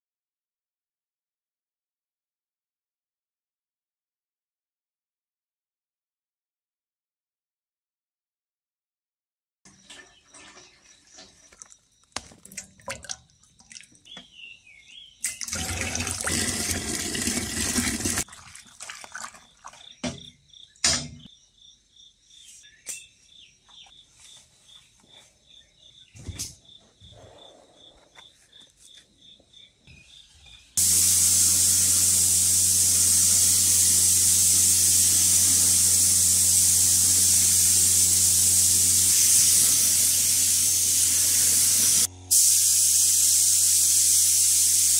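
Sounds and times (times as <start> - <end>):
paint pouring into a bucket: 15.4 - 19.9
paint spray gun hissing: 30.8 - 44.9.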